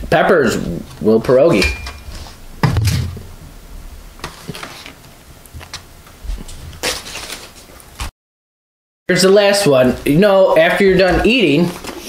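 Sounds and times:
papery scrape: 4.2s - 5.0s, 6.3s - 7.8s.

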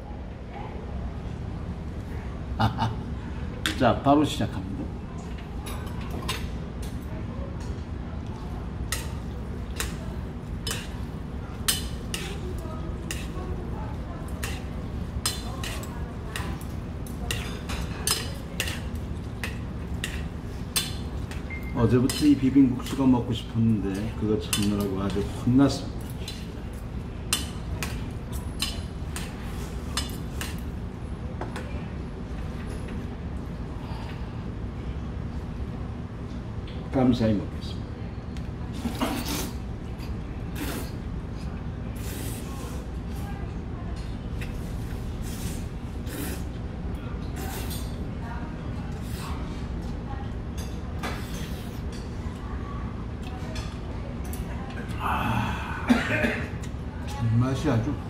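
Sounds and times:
low room hum: 0.0s - 58.0s
chopsticks mixing noodles in bowl: 10.6s - 30.6s.

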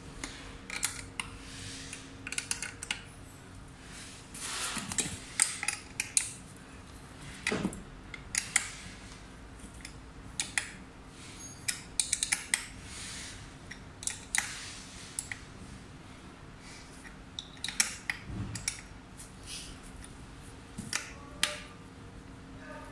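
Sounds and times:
metallic tool clicks: 11.7s - 12.7s.

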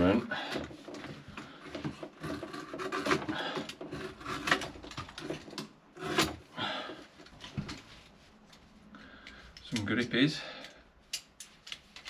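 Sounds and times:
armoured cable scraping and rubbing: 0.0s - 8.7s.

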